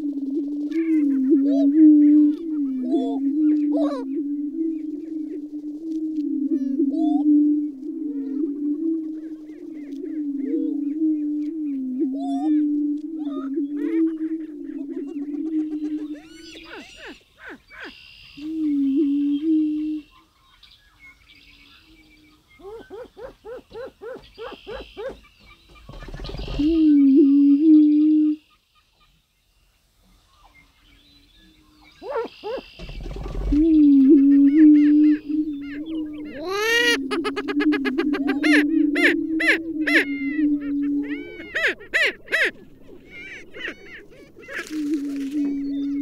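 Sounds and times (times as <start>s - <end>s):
prairie-chicken low hoots: 0.0s - 20.2s, 21.8s - 28.5s, 31.7s - 46.0s
prairie-chicken rising and falling calls: 0.0s - 20.2s, 31.7s - 46.0s
birds cackling: 0.7s - 5.5s, 13.2s - 18.5s, 19.2s - 27.2s, 31.5s - 46.0s.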